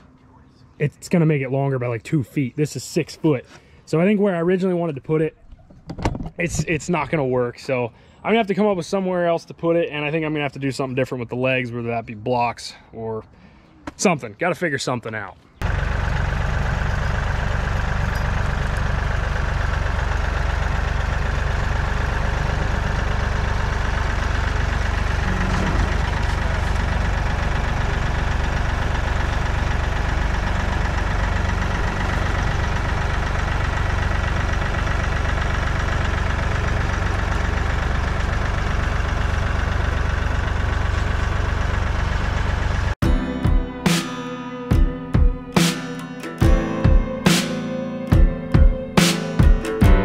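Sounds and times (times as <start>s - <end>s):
tractor diesel engine running: 15.6s - 50.0s.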